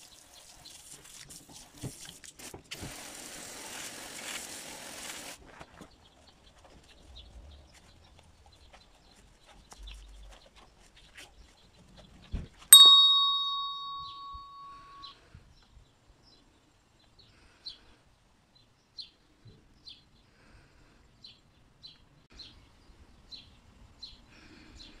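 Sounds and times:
bird chirping: 6.0s - 15.2s
hand bell ringing: 12.7s - 15.0s.

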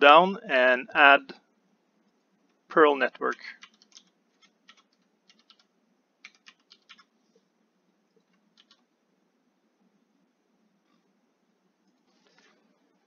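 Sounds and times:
faint keyboard typing: 2.0s - 9.0s, 11.8s - 13.0s.

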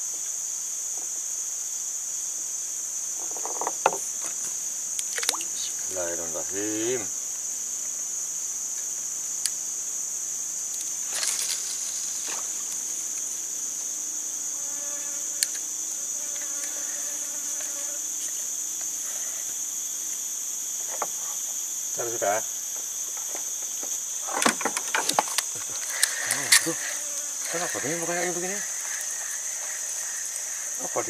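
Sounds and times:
high-pitched insect chorus: 0.0s - 31.0s
brief rustle: 10.8s - 12.8s.

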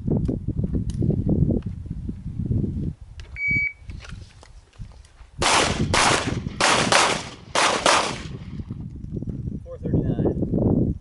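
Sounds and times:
shot timer beep: 3.4s - 3.8s
handgun shots with echo: 5.4s - 8.4s.

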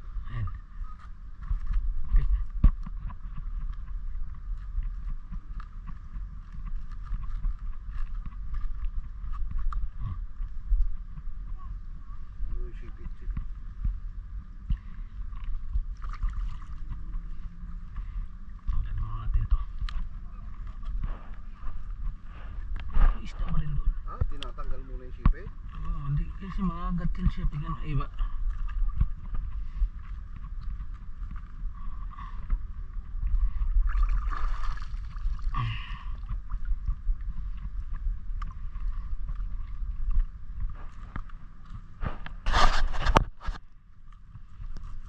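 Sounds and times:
steady low rumble: 0.0s - 45.0s
water sloshing and bubbling: 14.6s - 18.7s, 28.1s - 30.6s, 31.2s - 41.3s
water splashing off fishing net: 34.0s - 35.3s.

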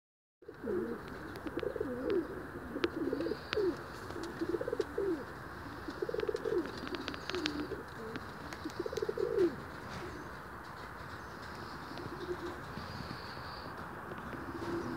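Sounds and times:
pigeons cooing: 0.4s - 14.9s.

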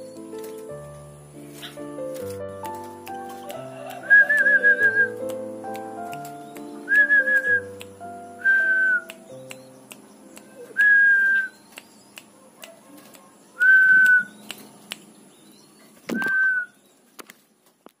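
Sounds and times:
person whistling short notes: 4.0s - 9.6s, 10.8s - 11.6s, 13.6s - 14.4s, 16.2s - 16.7s.

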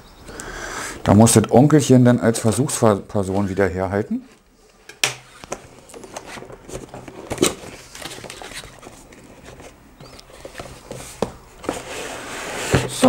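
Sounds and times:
cardboard box rustling and scraping: 5.3s - 13.0s.

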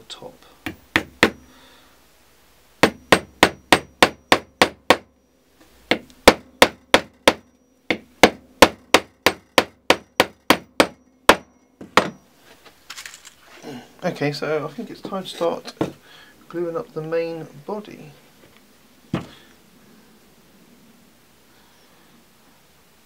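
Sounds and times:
hammer tapping a nail: 0.6s - 1.4s, 2.8s - 5.1s, 5.9s - 12.2s.

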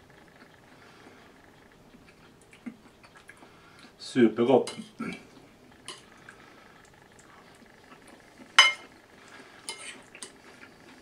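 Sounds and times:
cutlery clinking against a plate: 8.6s - 8.9s, 9.7s - 10.4s.

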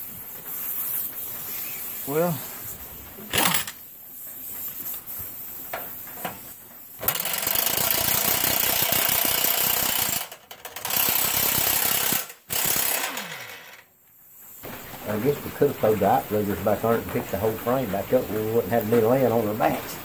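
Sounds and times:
impact wrench hammering: 7.0s - 13.4s.

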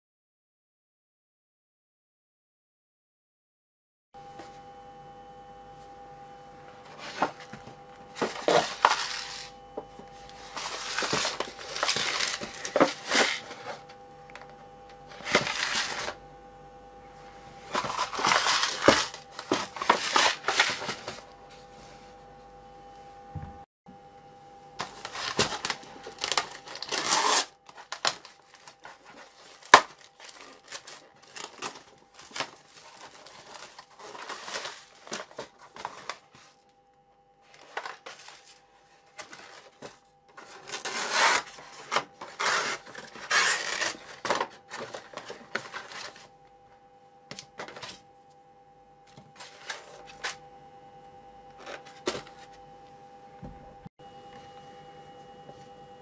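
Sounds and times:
faint steady hum: 4.2s - 56.0s
plastic wrap crinkling and tearing: 10.4s - 13.8s, 24.8s - 36.3s, 39.2s - 46.2s.

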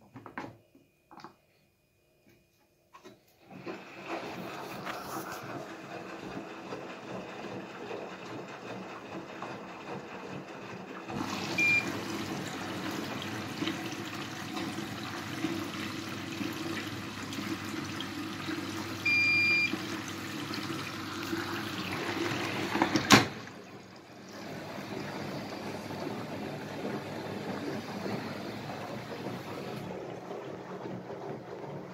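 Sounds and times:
washing machine water noise: 3.4s - 31.9s
washing machine control panel beeping: 11.1s - 15.8s, 16.5s - 23.6s.

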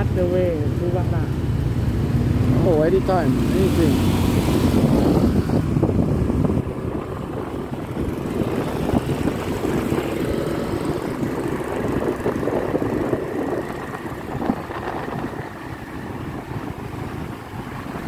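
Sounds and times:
motorbike engine: 0.0s - 18.0s
wind on microphone: 2.0s - 18.0s.

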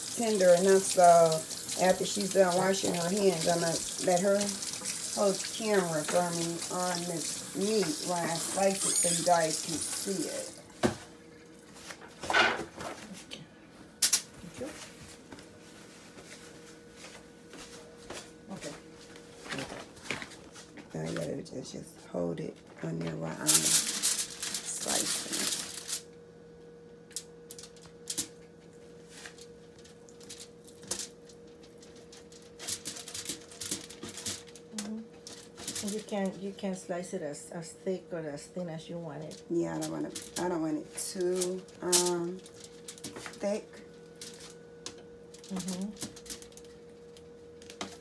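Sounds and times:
faint steady hum: 0.0s - 48.0s
foil and plastic crinkling: 0.1s - 10.5s, 19.3s - 21.2s, 22.8s - 26.1s, 29.1s - 36.6s, 39.2s - 44.6s, 45.3s - 46.9s.

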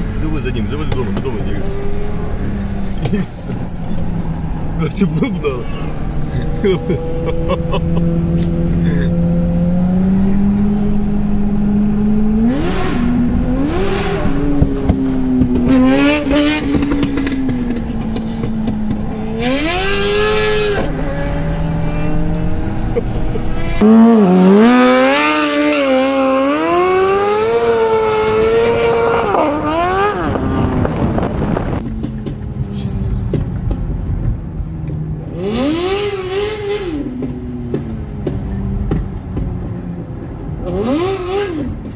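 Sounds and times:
motorcycle engine revving hard: 6.5s - 31.8s, 35.3s - 37.3s, 40.6s - 41.8s.

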